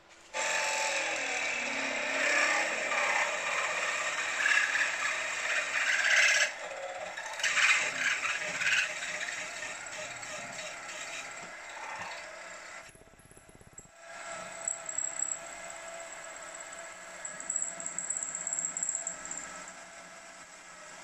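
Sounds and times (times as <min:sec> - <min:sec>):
milling machine drilling metal: 0:00.4 - 0:12.7.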